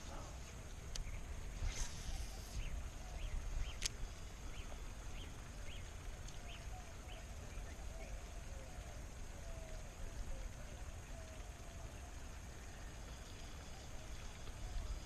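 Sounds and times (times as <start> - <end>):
wind rumbling on microphone: 0.0 - 12.8
bird chirps: 1.0 - 8.8.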